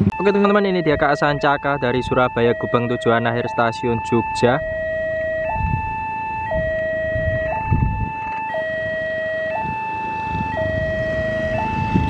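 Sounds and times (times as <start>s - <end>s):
two-tone crossing alarm: 0.0s - 12.0s
dull low thumps: 4.2s - 12.0s.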